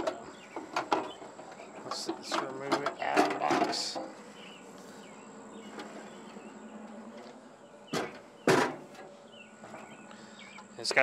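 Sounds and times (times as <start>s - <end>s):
metal saw case clunks: 7.9s - 9.1s.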